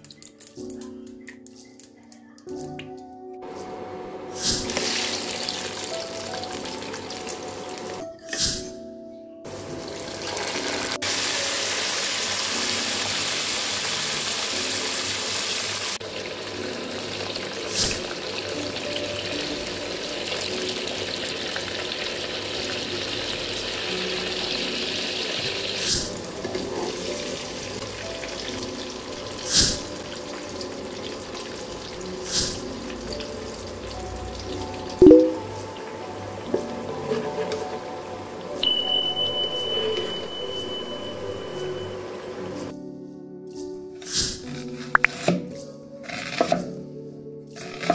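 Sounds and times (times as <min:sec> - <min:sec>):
background music: 0:00.0 - 0:47.9
plantain sizzling in oil: 0:04.4 - 0:08.0, 0:09.8 - 0:42.4.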